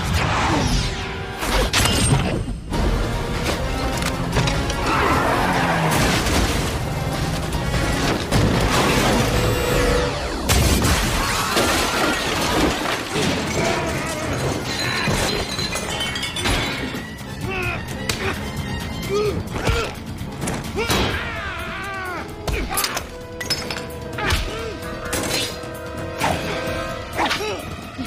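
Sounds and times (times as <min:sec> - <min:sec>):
film score music: 0:00.0 - 0:28.0
glass shattering: 0:10.5 - 0:17.0.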